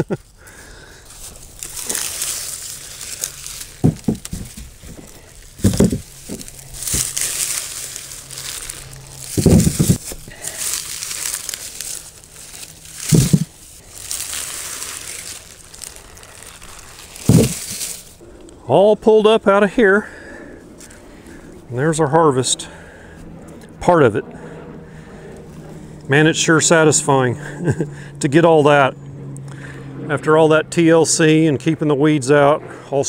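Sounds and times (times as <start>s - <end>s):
leafy onion tops rustling: 0.0s - 18.2s
low thumps: 3.7s - 10.3s, 13.0s - 13.6s, 16.9s - 18.0s.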